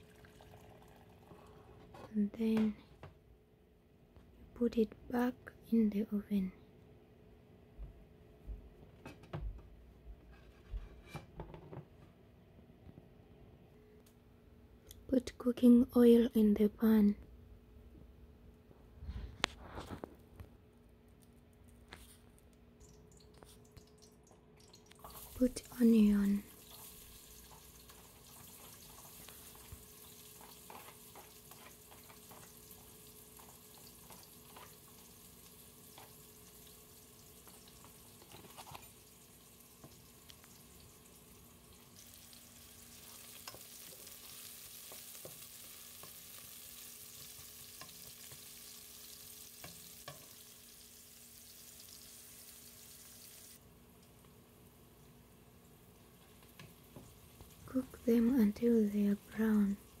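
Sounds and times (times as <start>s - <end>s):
onions sizzling in oil: 24.9s - 60.0s.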